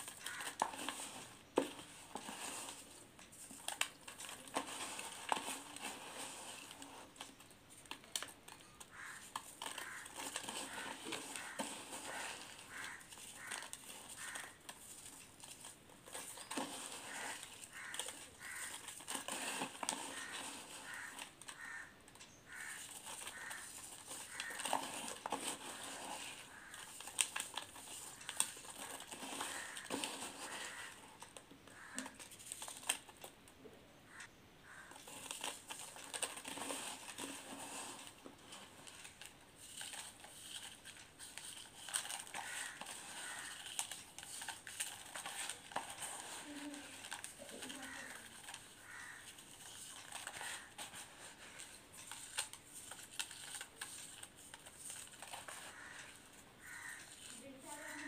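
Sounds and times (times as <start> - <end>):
crystals crunching and crackling: 0.0 - 21.9, 22.5 - 33.3, 34.7 - 58.0.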